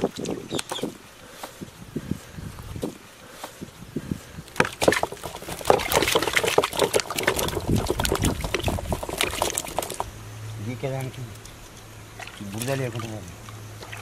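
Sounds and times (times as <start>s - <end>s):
potatoes splashing into water: 4.6s - 10.1s.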